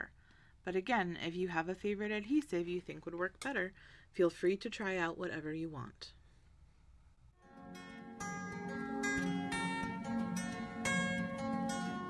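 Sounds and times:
plucked strings music: 0:07.4 - 0:12.0.

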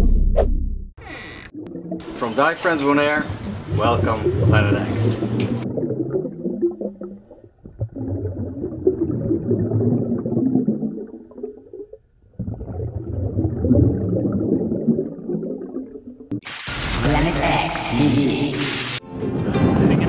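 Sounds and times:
muffled underwater bubbling: 0:01.0 - 0:16.4.

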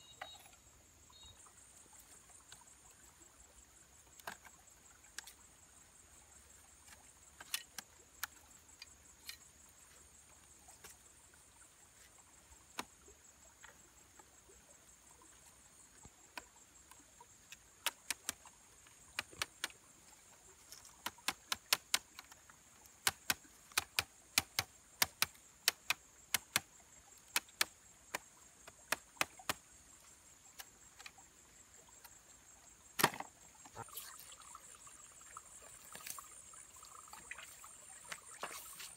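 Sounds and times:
bamboo strips clicking together: 0:17.5 - 0:18.5, 0:19.1 - 0:19.8, 0:20.6 - 0:29.6.

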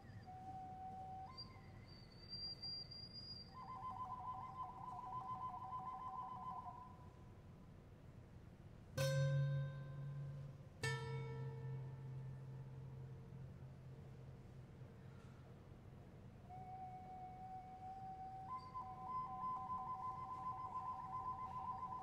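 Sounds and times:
whistle tones: 0:00.0 - 0:07.2, 0:16.4 - 0:22.0.

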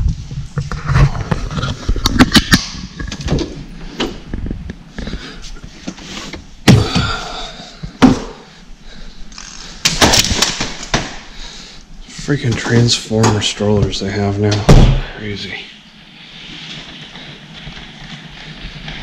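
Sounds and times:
loud thumps: 0:13.3 - 0:15.2.

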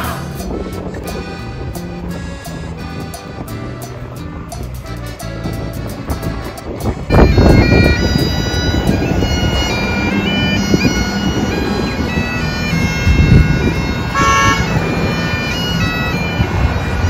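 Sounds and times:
bagpipes playing a tune: 0:00.0 - 0:17.0
road traffic rumbling: 0:00.0 - 0:17.0
car passing close: 0:06.8 - 0:17.0.

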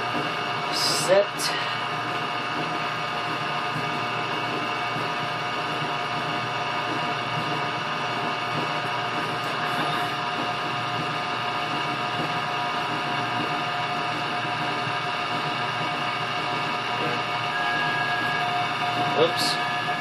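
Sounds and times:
router machine whine: 0:05.4 - 0:20.0.

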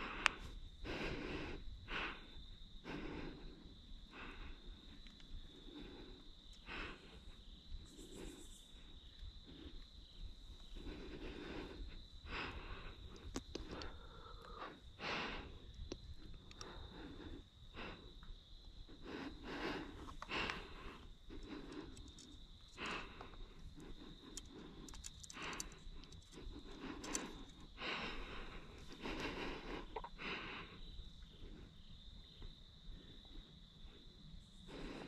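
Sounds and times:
rustling and breathing: 0:00.0 - 0:35.0
small clicks: 0:13.1 - 0:14.6, 0:21.4 - 0:27.7.

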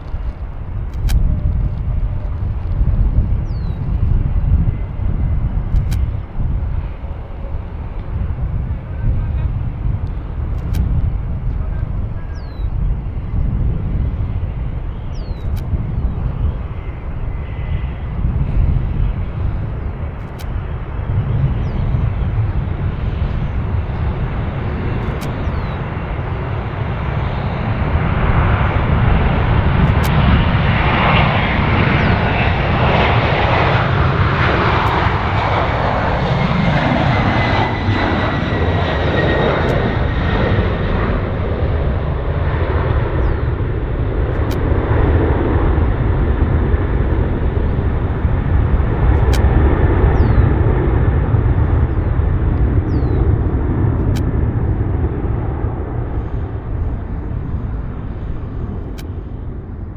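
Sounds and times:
jet engines roaring: 0:00.0 - 0:59.9
engine whine falling in pitch: 0:47.3 - 0:50.8.

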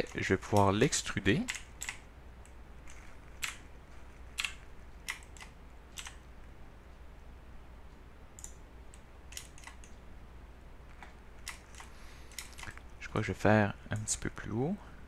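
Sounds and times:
faint low hum: 0:00.0 - 0:15.0
computer keyboard key clicks: 0:01.4 - 0:03.6, 0:04.4 - 0:06.2, 0:09.3 - 0:09.9.

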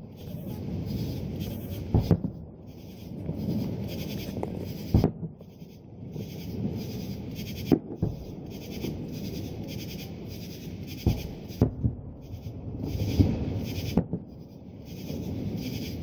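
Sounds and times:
low murmur: 0:00.0 - 0:05.1
distant firework booms: 0:00.2 - 0:14.3.

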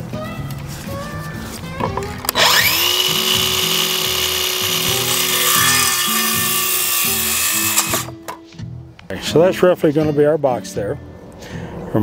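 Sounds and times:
background music: 0:00.0 - 0:12.0
circular saw cutting wood: 0:02.3 - 0:08.2.

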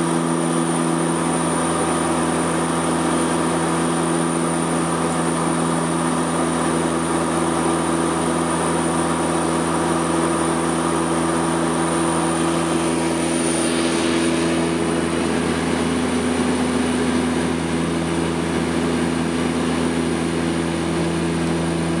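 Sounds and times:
turboprop engines droning: 0:00.0 - 0:22.0.

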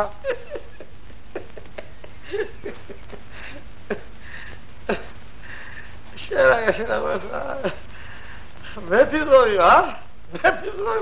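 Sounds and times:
film soundtrack hiss and hum: 0:00.0 - 0:11.0
breathing sounds: 0:03.3 - 0:06.2, 0:07.8 - 0:08.8.

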